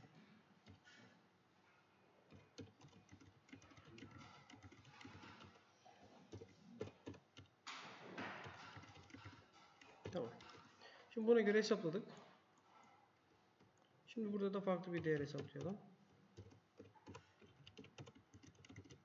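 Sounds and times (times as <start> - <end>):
keyboard typing: 0.0 - 1.1, 2.3 - 11.0, 14.8 - 19.0.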